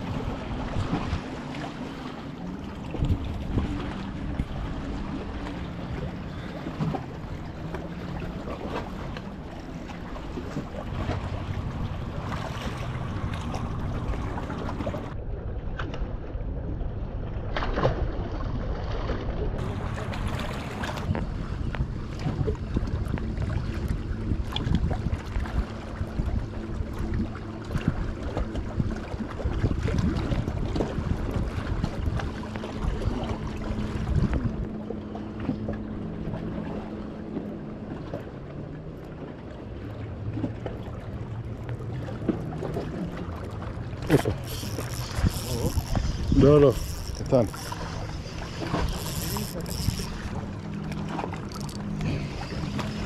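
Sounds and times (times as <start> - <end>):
boat motor humming: 0.0 - 15.3, 19.3 - 53.0
waves lapping against rocks: 0.0 - 16.1, 17.0 - 34.6, 37.9 - 53.0
wind buffeting microphone: 2.6 - 17.1, 19.6 - 36.5, 43.8 - 53.0.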